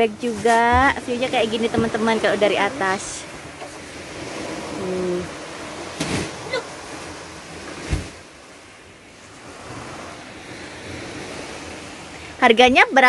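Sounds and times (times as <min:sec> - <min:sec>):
wind on microphone: 0:00.0 - 0:12.4
waves washing onto beach: 0:00.0 - 0:13.0.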